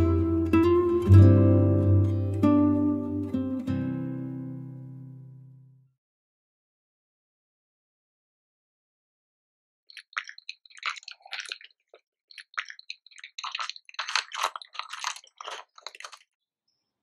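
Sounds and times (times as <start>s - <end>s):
straw squishing in milk froth: 9.9s - 16.4s.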